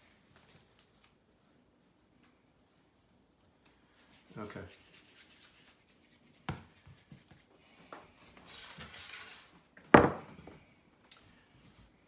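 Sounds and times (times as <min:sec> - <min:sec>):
hands rubbing dough on counter: 0:00.0 - 0:07.8.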